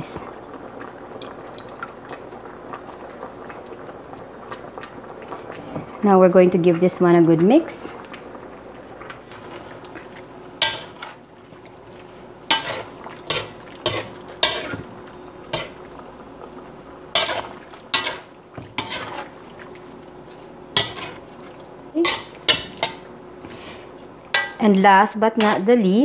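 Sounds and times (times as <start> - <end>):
faint steady hum: 0.0 - 26.0
spatula scraping a pan: 12.5 - 14.9, 17.1 - 19.4, 20.2 - 21.3.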